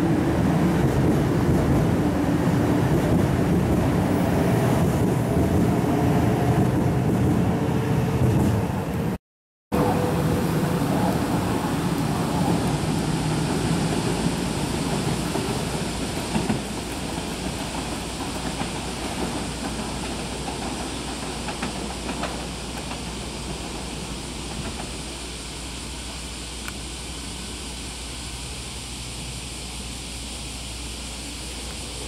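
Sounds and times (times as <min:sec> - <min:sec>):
train rushing rumble: 0:00.0 - 0:32.0.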